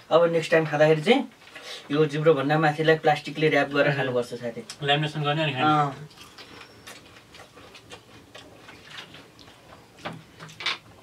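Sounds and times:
crisp shells being chewed: 0:06.1 - 0:10.9.

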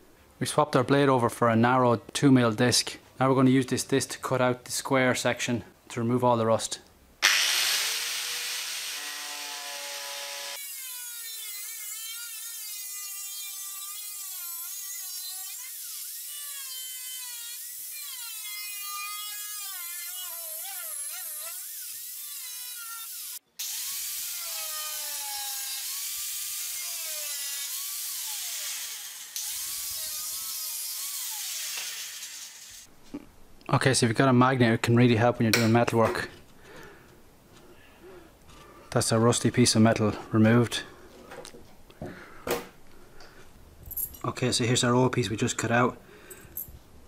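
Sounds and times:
angle grinder cutting metal: 0:07.2 - 0:32.9.

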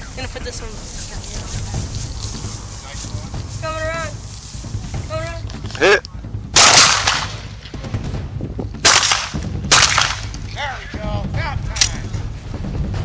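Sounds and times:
shotgun blasts: 0:06.6 - 0:07.8, 0:08.8 - 0:10.4.

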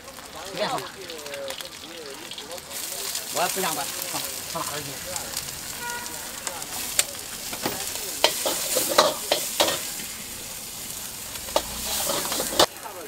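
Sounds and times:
bean sprouts sizzling in a wok: 0:00.0 - 0:13.0
metal ladle scraping a wok: 0:05.4 - 0:12.7.

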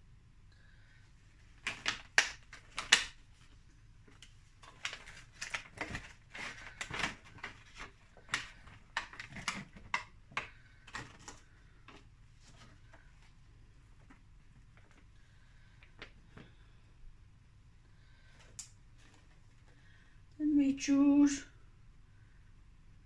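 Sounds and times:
plastic punnet crackling and clicking: 0:01.6 - 0:13.1.

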